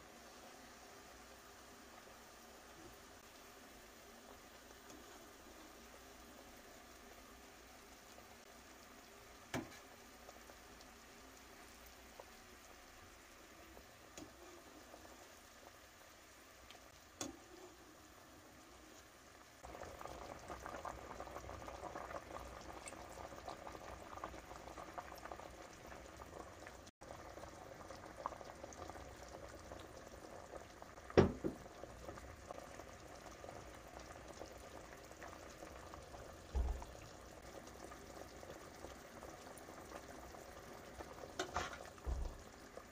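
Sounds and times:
soup boiling: 0:00.0 - 0:42.9
metal utensils against pot: 0:41.4 - 0:41.9.

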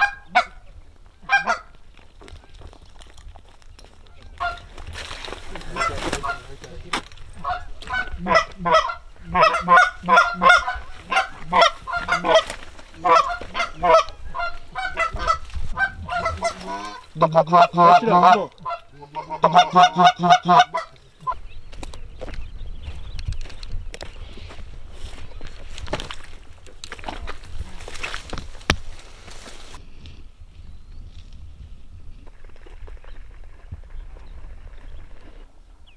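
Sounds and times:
goose honking: 0:00.0 - 0:00.6, 0:01.2 - 0:01.7, 0:04.3 - 0:04.7, 0:05.6 - 0:06.7, 0:07.4 - 0:21.4.

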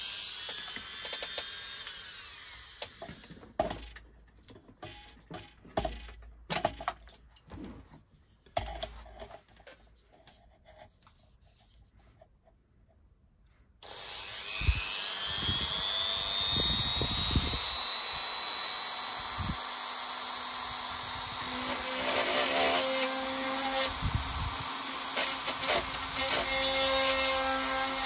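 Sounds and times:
drill bit drilling into wood: 0:00.0 - 0:03.9, 0:13.8 - 0:28.0
rotary multitool whining: 0:00.0 - 0:04.0, 0:13.8 - 0:28.0.

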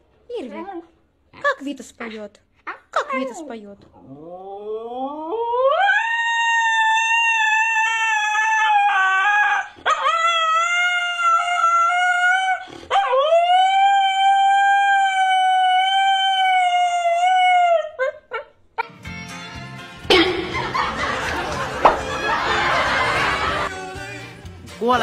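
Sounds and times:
dog howling: 0:04.0 - 0:18.5.

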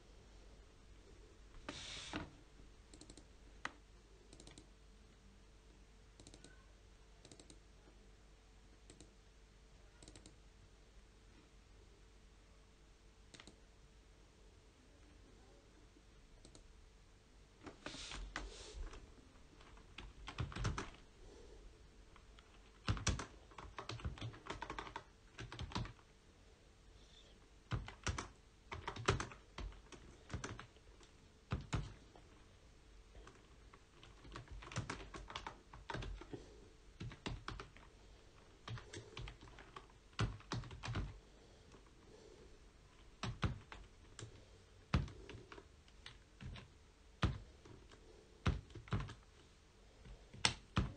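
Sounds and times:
typing on computer keyboard: 0:02.9 - 0:04.7, 0:06.2 - 0:06.6, 0:07.2 - 0:07.6, 0:10.0 - 0:10.4, 0:19.6 - 0:21.0, 0:22.1 - 0:26.0, 0:27.7 - 0:32.0, 0:33.2 - 0:36.4, 0:37.0 - 0:41.9, 0:43.2 - 0:49.3.

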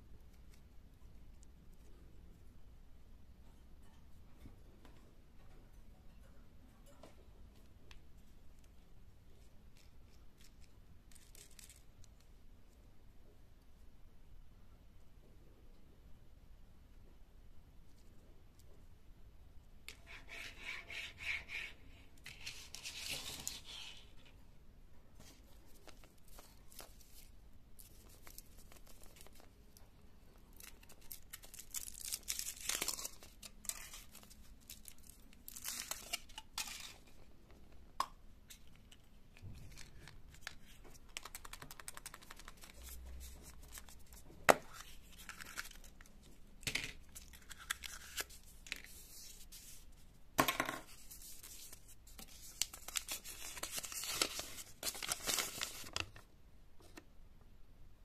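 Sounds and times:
foil wrapper crinkling: 0:30.5 - 0:37.0, 0:51.2 - 0:56.0.

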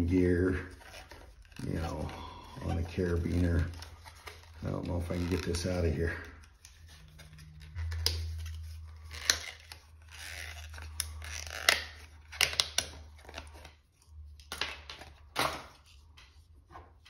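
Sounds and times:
plastic scraping and rustling: 0:00.0 - 0:17.0
plastic packaging cracking: 0:07.5 - 0:13.8.

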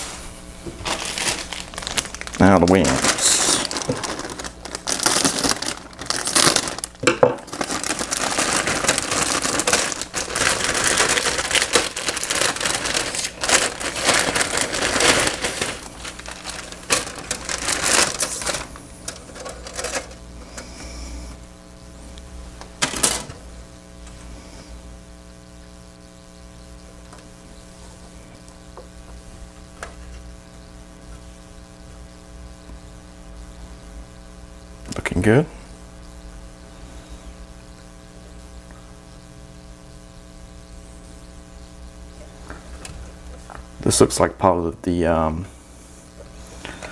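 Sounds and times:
electrical hum: 0:00.0 - 0:46.9
plastic bag crinkling: 0:00.7 - 0:20.3, 0:22.8 - 0:23.4.

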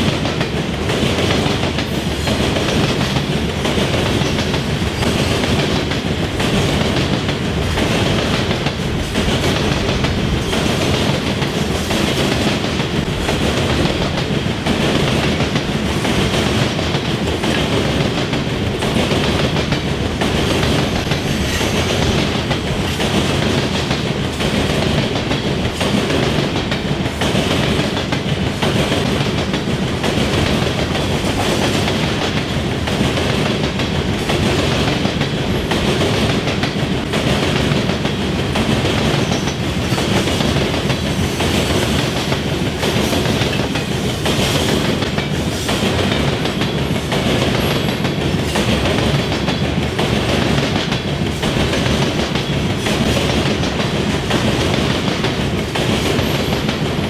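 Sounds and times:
train wheels clattering: 0:00.0 - 0:57.0.

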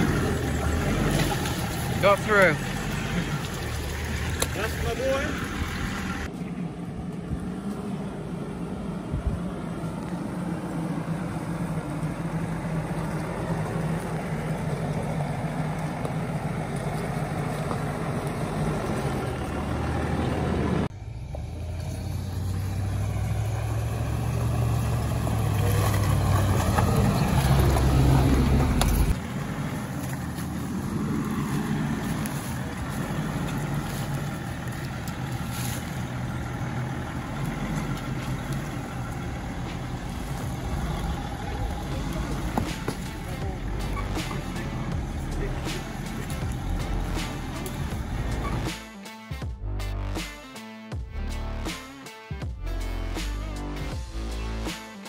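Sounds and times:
vehicle engine running: 0:00.0 - 0:50.4.

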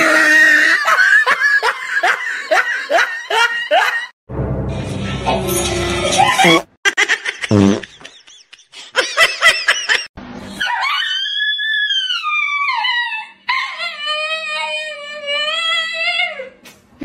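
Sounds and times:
dog howling: 0:10.6 - 0:16.4.

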